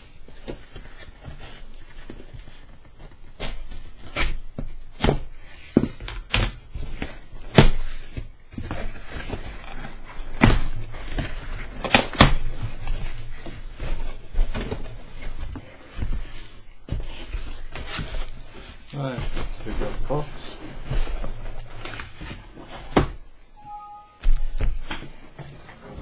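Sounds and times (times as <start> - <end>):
cardboard crackling and ripping: 6.8 - 23.0.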